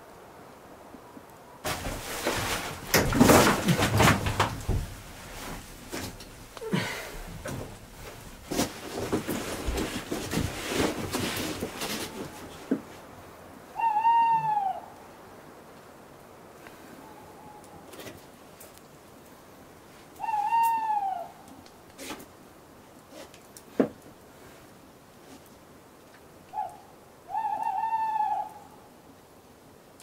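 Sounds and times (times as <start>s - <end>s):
clattering knocks and rustling: 1.6s - 13.0s
animal call falling in pitch: 13.8s - 15.0s, 20.2s - 21.4s, 26.5s - 28.8s.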